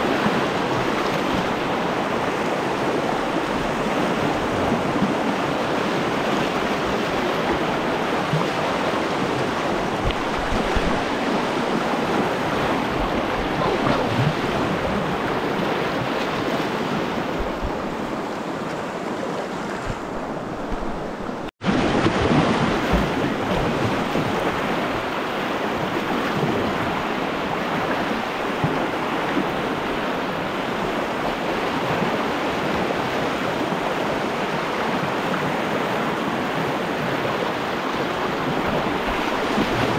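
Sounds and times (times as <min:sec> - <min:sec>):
rushing whitewater: 0:00.0 - 0:39.9.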